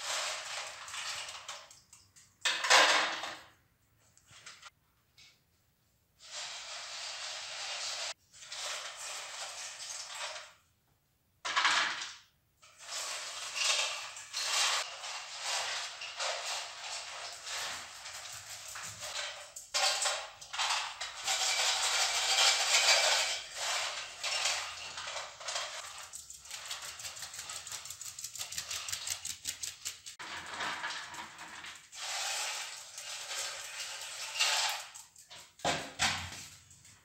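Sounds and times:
dry dog food rattling in bowl: 12.8 - 35.6.

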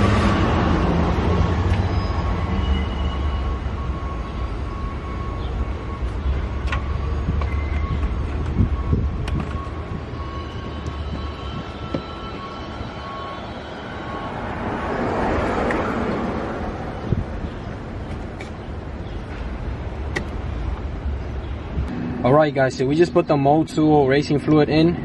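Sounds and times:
vehicle passing with rumble: 0.0 - 2.9.

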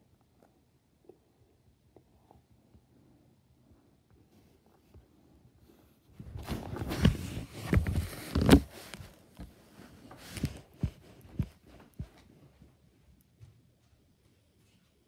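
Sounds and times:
device handling rustling: 6.2 - 12.2.

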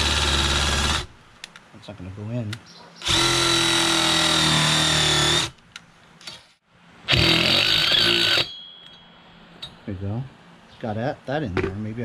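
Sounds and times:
cordless drill running: 0.0 - 1.1, 3.0 - 5.5, 7.1 - 8.5
impact driver running: 0.0 - 1.1.

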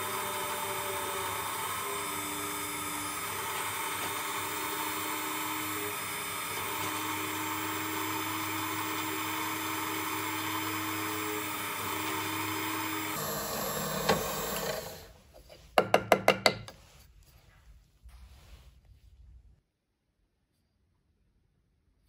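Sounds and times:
drill press drilling metal: 0.0 - 15.1.

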